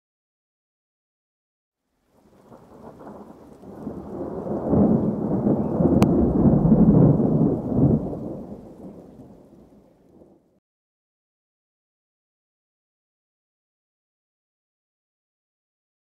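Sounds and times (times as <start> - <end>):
thunder rumbling: 2.2 - 10.6.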